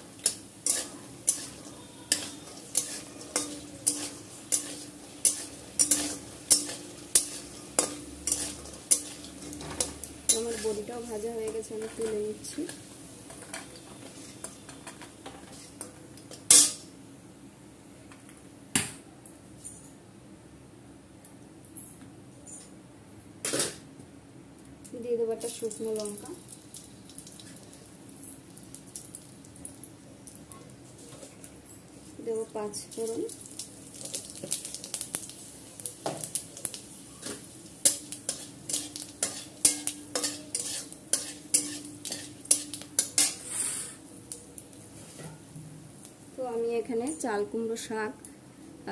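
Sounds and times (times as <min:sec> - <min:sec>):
spices sizzling in hot oil: 0:00.0 - 0:16.9, 0:24.8 - 0:48.2
metal spatula scraping a pan: 0:00.2 - 0:11.0, 0:13.4 - 0:15.8, 0:37.8 - 0:43.9.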